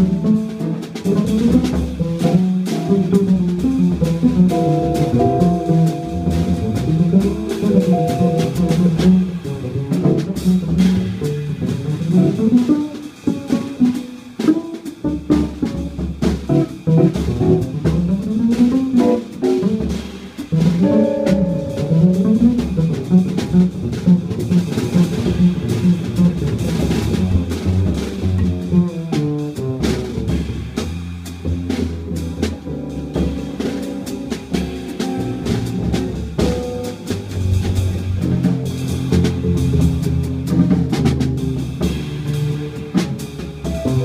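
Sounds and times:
drum kit with cymbals: 0.0 - 44.0
upright double bass: 0.0 - 44.0.

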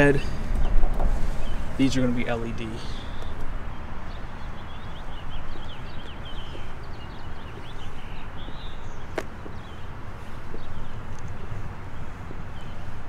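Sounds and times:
birds chirping: 0.0 - 13.0
footsteps on asphalt: 3.1 - 13.0.

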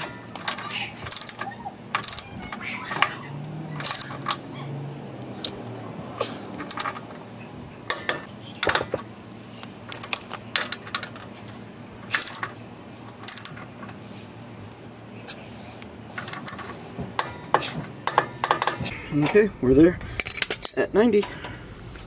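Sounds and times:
socket wrench clinking on metal: 0.0 - 4.5, 6.2 - 7.3, 7.9 - 11.4, 12.0 - 12.6, 13.2 - 14.0, 16.1 - 18.9.

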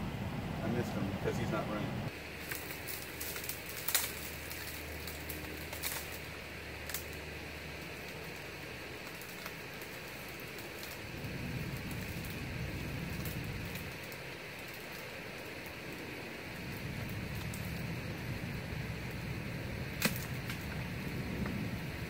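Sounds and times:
low rumble: 0.0 - 2.1
outdoor hiss: 0.0 - 22.0.

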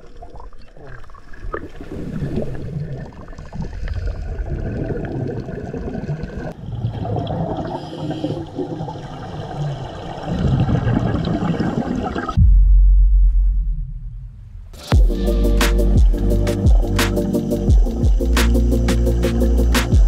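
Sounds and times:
underwater bubbles gurgling: 0.0 - 12.4
music: 14.8 - 20.0.

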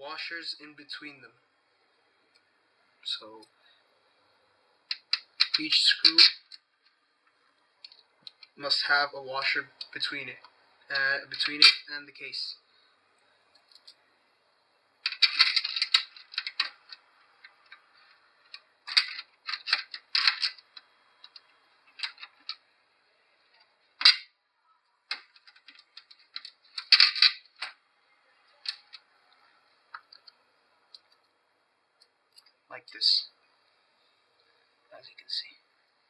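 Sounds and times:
screws rattling against metal case: 4.9 - 6.5, 15.0 - 22.6, 25.1 - 27.8.

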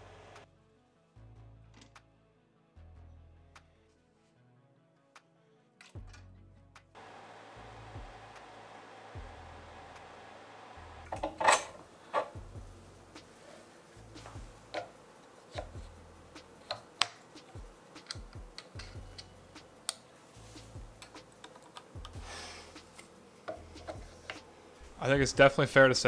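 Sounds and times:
plastic parts clicking and tapping: 16.6 - 20.0, 21.0 - 22.2.

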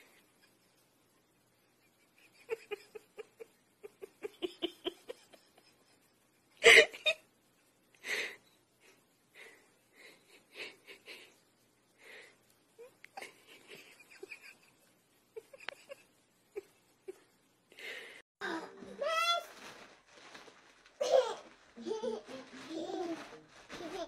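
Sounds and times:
person wheezing laughter: 6.6 - 7.2.

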